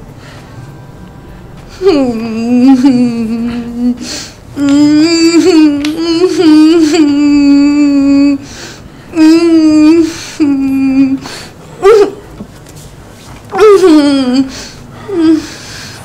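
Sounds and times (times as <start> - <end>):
woman wailing: 1.8 - 8.4, 9.2 - 11.2, 11.8 - 12.2, 13.5 - 15.5.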